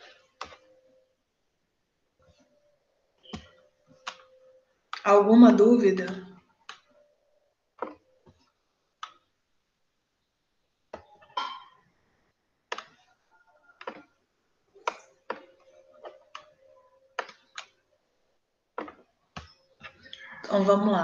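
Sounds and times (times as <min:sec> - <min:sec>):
computer mouse clicking: 0:12.7 - 0:13.1.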